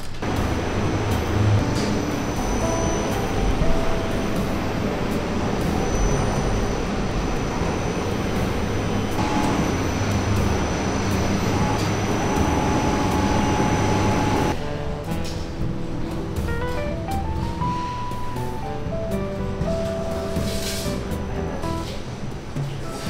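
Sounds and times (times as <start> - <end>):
factory machinery hum and rumble: 0.0 - 23.0
high machine whine: 0.2 - 14.6
music with rising notes: 0.2 - 23.0.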